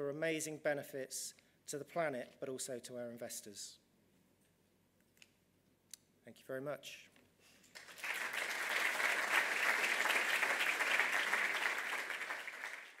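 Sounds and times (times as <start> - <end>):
audience applauding: 7.7 - 13.0.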